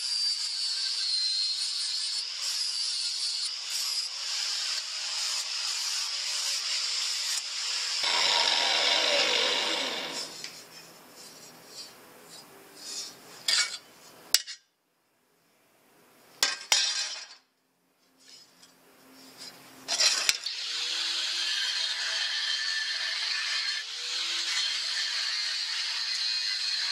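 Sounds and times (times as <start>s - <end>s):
angle grinder grinding steel: 0.0s - 10.6s, 19.9s - 26.9s
grinder spinning down whine: 8.0s - 10.4s.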